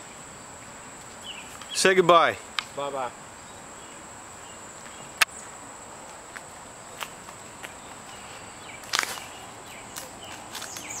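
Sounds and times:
insects droning: 0:00.0 - 0:11.0
footsteps on pavement: 0:04.7 - 0:05.3, 0:06.0 - 0:11.0.

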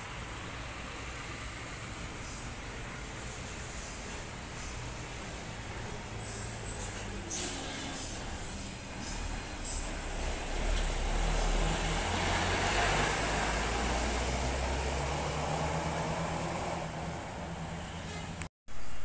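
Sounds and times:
bus diesel engine pulling away: 0:00.0 - 0:19.0.

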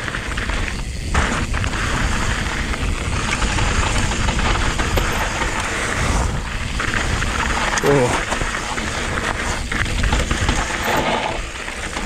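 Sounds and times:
bike tyres rolling over gravel: 0:00.0 - 0:12.0
sharp clicks from bike: 0:00.0 - 0:12.0.

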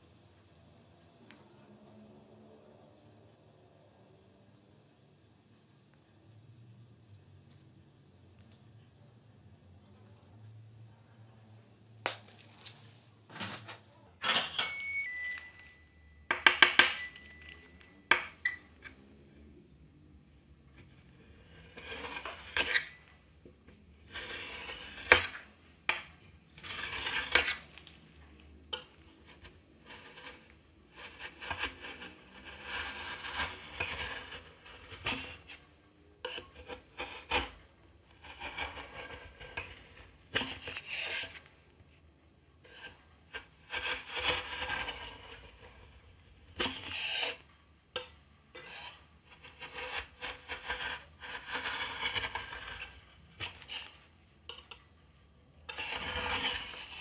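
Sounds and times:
metal spatula scraping cold plate: 0:14.7 - 0:19.4, 0:20.7 - 0:41.6, 0:42.6 - 0:57.0.

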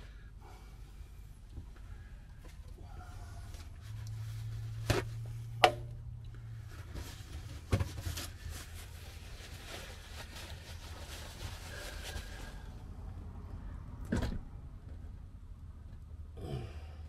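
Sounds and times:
paper towels rustling: 0:06.8 - 0:12.7.

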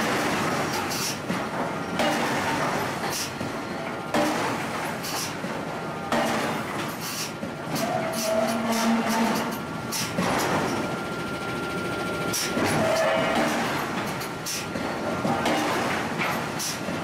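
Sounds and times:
faint ringing tones: 0:10.7 - 0:12.7.

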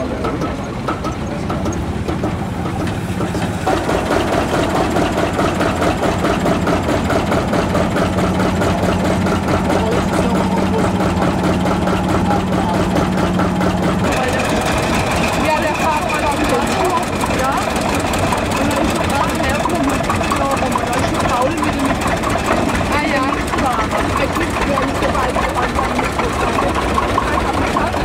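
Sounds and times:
tractor engine idling: 0:00.0 - 0:28.0.

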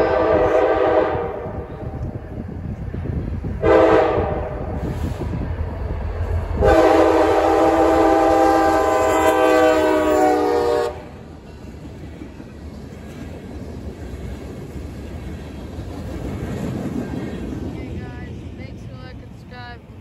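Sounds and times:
locomotive air horn blast: 0:00.0 - 0:01.6, 0:03.6 - 0:05.2, 0:06.6 - 0:11.1
freight cars rumbling past: 0:00.0 - 0:10.2.

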